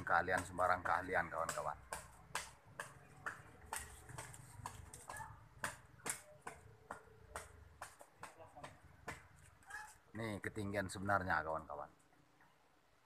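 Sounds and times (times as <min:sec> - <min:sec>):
faint sharp clicks and taps: 0:00.3 - 0:09.7.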